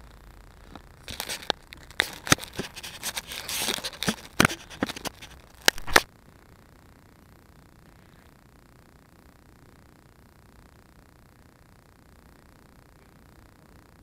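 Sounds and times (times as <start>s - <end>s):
dry grass scratching microphone: 0.6s - 6.1s.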